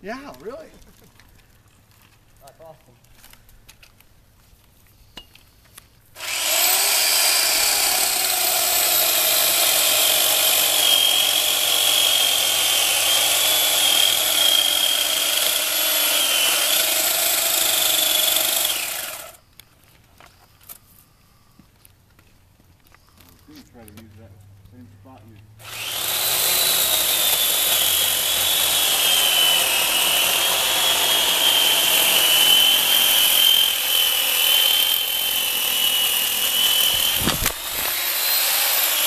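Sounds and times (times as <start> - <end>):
electric chainsaw cutting wood: 6.2 - 19.4, 25.6 - 39.0.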